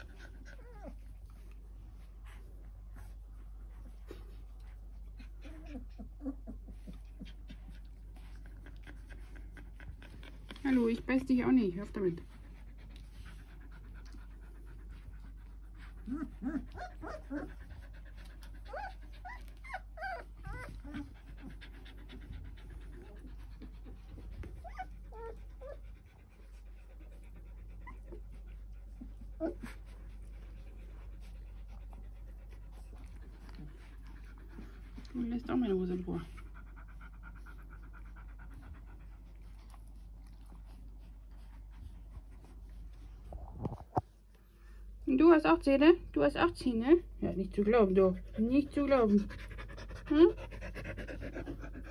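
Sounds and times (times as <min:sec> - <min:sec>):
puppies yipping and whining: 0:00.0 - 0:10.4, 0:15.8 - 0:26.5
puppies scuffling and chewing: 0:00.0 - 0:51.9.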